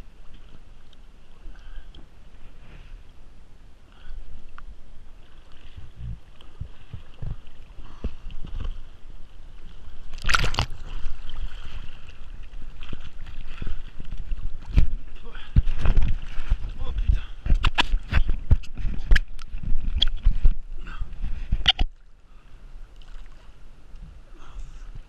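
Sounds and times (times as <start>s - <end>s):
loud splash: 10.2s - 12.0s.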